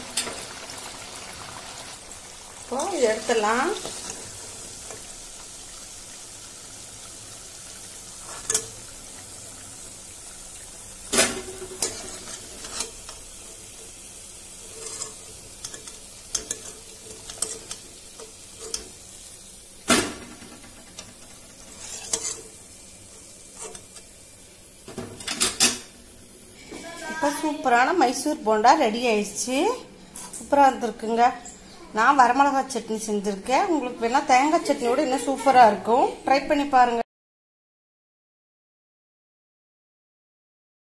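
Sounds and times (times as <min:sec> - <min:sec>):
food sizzling in hot oil: 0:00.0 - 0:31.5
metal spatula scraping a pan: 0:02.7 - 0:05.1, 0:08.2 - 0:08.8, 0:11.1 - 0:19.3, 0:20.5 - 0:24.2.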